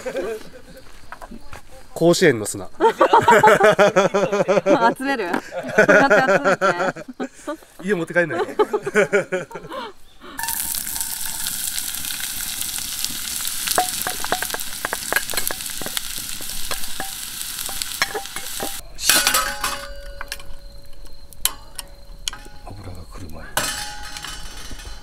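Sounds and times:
onions sizzling in a pot: 10.4s - 19.8s.

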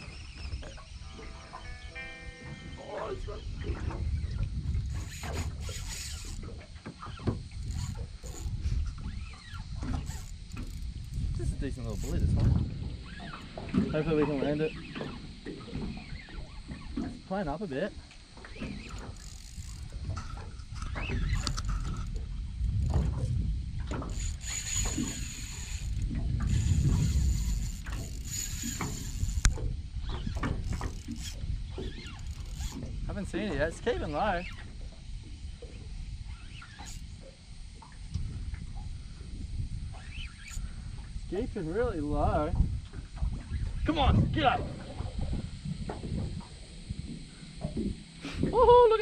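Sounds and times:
wind buffeting microphone: 0.0s - 17.3s, 18.2s - 49.0s
fishing reel clicks: 3.6s - 17.4s, 18.1s - 34.7s, 36.2s - 38.3s, 39.9s - 40.8s.

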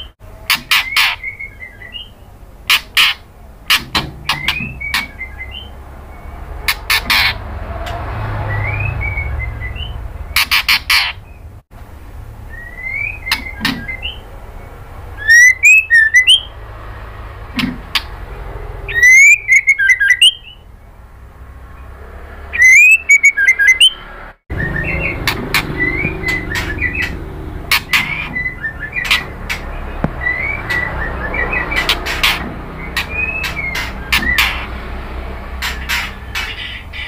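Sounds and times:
bird chattering: 0.0s - 7.4s, 8.6s - 11.6s, 12.5s - 16.6s, 17.5s - 20.8s, 22.5s - 37.0s
bird clicking call notes: 2.7s - 5.6s
bird rising whistles: 15.2s - 16.5s, 18.9s - 20.6s, 22.6s - 24.0s.

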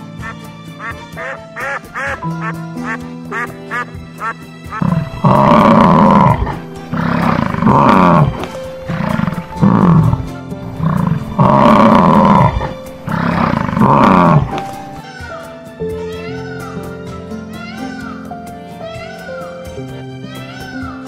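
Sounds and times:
background music: 0.0s - 21.0s
bison bellowing: 4.8s - 15.0s.

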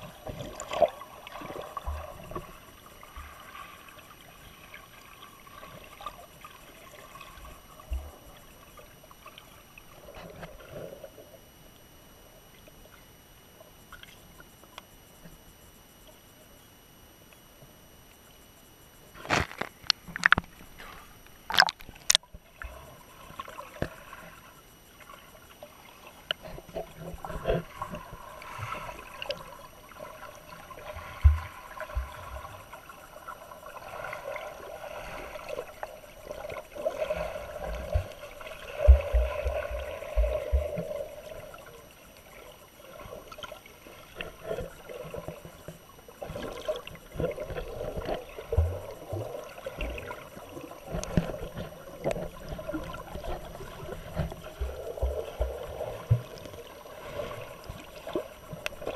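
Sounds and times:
small clicks and knocks: 19.2s - 20.6s
water sloshing and splashing: 19.2s - 58.9s.

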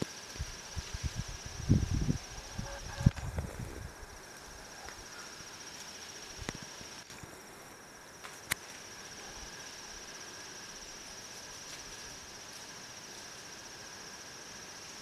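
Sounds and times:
crickets trilling: 0.0s - 15.0s.

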